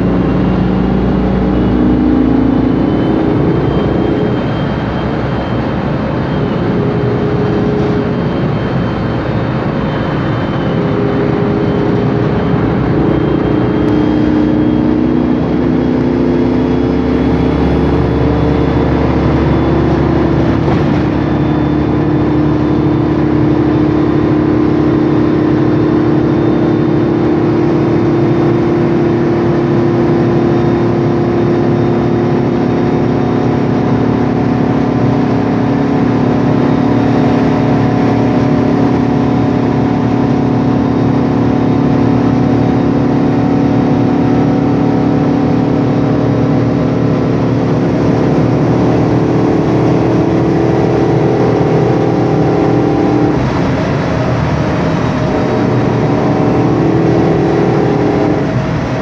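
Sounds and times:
bus engine running: 0.0s - 59.0s
gearbox whine: 0.0s - 59.0s
road noise: 0.0s - 59.0s.

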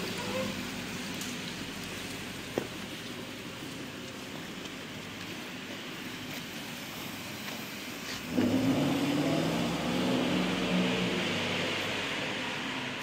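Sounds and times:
car engine accelerating: 8.3s - 13.0s.

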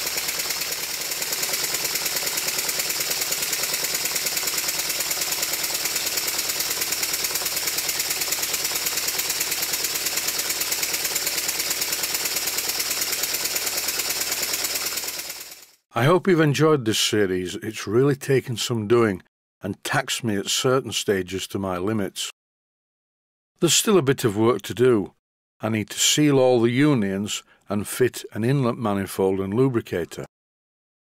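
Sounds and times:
model steam engine chuffing: 0.0s - 15.8s.

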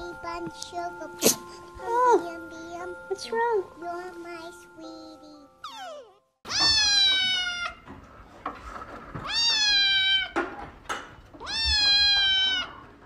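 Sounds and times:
kitten meowing: 5.6s - 7.8s, 9.3s - 10.4s, 11.4s - 12.8s.

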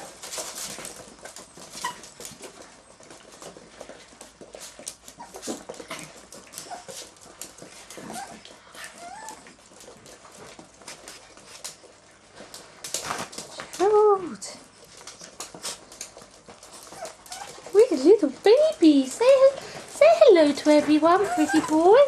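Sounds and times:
puppies whimpering and yipping: 0.0s - 3.0s, 5.0s - 10.0s, 15.0s - 22.0s
puppies scuffling: 0.0s - 22.0s.

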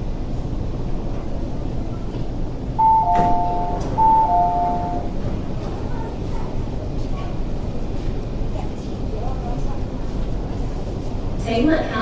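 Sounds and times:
train cabin hum: 0.0s - 11.4s
two-note train door chime: 2.8s - 5.2s.

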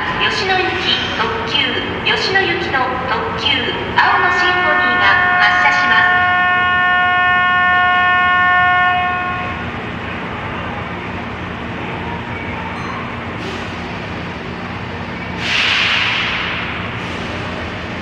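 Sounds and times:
station hum: 0.0s - 12.1s.

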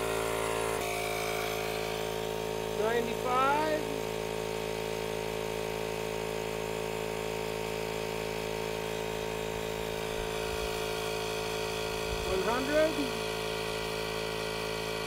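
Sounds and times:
electric air pump humming: 0.0s - 15.0s.

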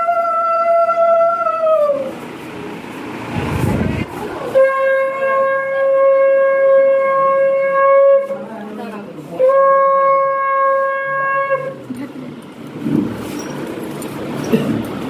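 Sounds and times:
conch shell blasts: 4.4s - 8.3s.

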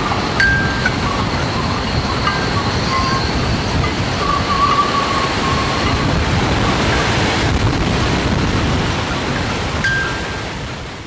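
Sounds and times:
faint high ringing tones: 0.0s - 7.1s, 9.8s - 10.5s
strong wind gusting: 0.0s - 11.0s
wind buffeting microphone: 0.0s - 11.0s.

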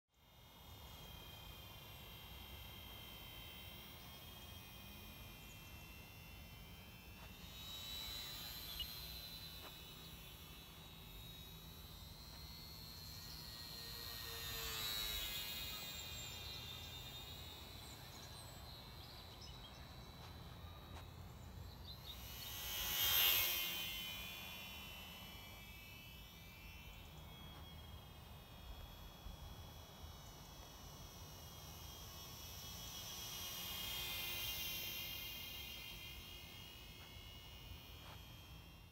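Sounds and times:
model plane motors whining: 0.2s - 38.9s.

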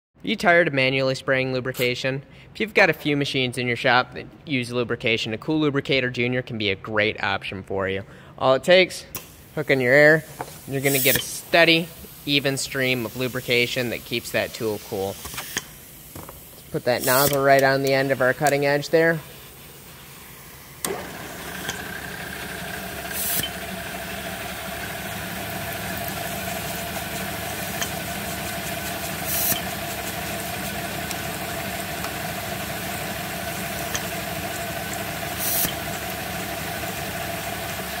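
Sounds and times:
lubricant spray hiss: 9.2s - 20.8s, 22.5s - 23.6s, 25.0s - 36.4s
drill press motor running: 20.2s - 38.0s.

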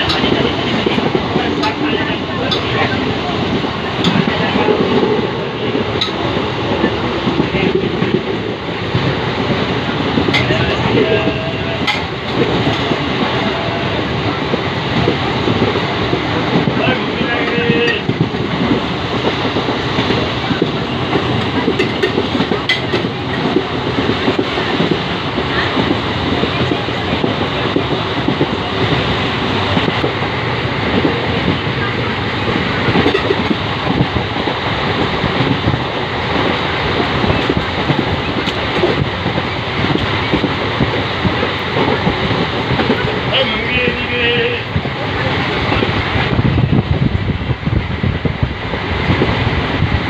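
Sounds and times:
wheels clattering over rails: 0.0s - 46.8s
train rumble inside coach: 0.0s - 50.0s.

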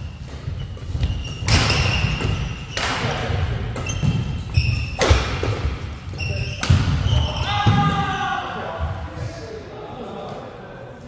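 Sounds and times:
shoes squeaking on court: 0.0s - 7.5s
rackets hitting shuttlecock: 0.1s - 8.0s.

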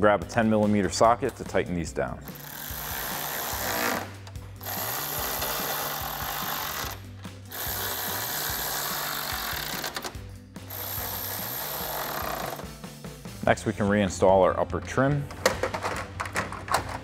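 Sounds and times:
background music: 0.0s - 17.0s
electric ratchet running: 2.3s - 12.7s.

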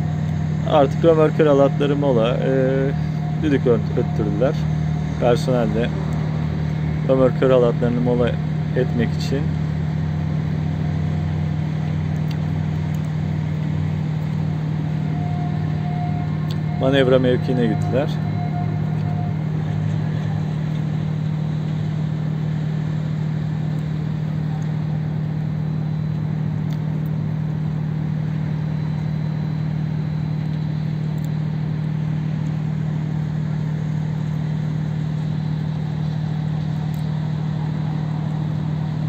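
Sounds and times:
low engine hum: 0.0s - 39.0s.

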